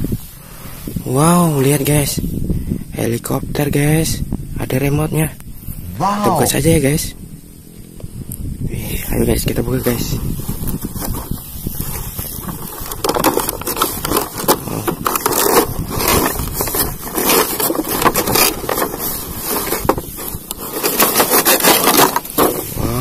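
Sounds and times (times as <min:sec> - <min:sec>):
cardboard box scraping and crackling: 0:09.8 - 0:23.0.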